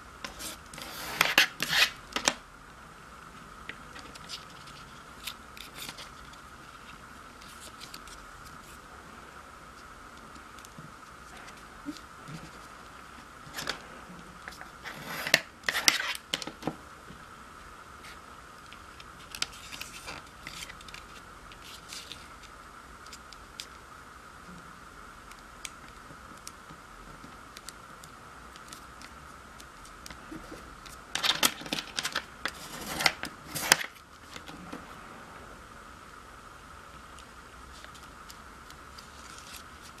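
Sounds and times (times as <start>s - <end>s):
faint high hum: 0.0s - 40.0s
ruler edge scraping paper: 0.3s - 2.0s, 14.8s - 16.2s, 32.5s - 33.8s
paper being folded and creased: 0.3s - 2.4s, 3.9s - 8.8s, 19.2s - 22.5s, 30.2s - 34.7s, 39.0s - 40.0s.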